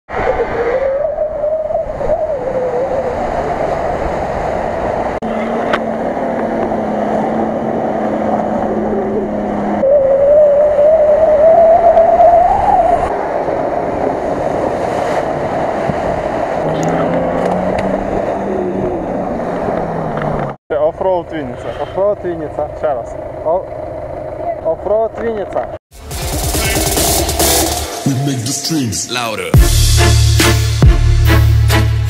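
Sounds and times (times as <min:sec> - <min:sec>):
suv engines revving hard: 0:03.1 - 0:09.8, 0:13.9 - 0:20.6.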